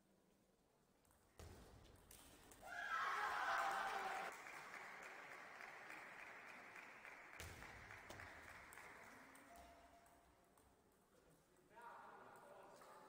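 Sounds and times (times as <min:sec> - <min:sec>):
spectators applauding: 0:02.7 - 0:09.6.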